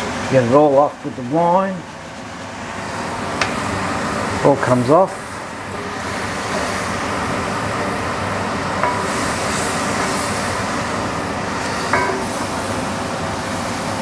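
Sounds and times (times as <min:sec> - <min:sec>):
wine sizzling in hot pan: 0:02.8 - 0:14.0.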